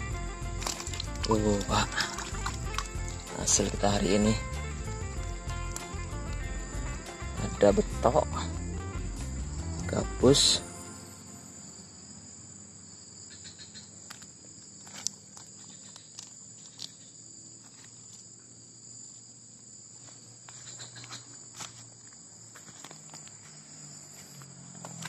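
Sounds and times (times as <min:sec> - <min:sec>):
rustling of dry leaves and grass: 0:00.0 - 0:06.5, 0:14.0 - 0:19.2
insects chorus: 0:00.0 - 0:25.0.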